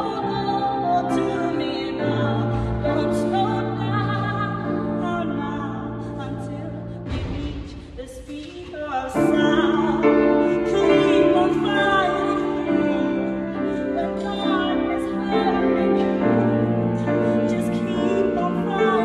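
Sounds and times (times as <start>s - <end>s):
grand piano accompaniment: 0.0s - 19.0s
woman singing: 0.0s - 19.0s.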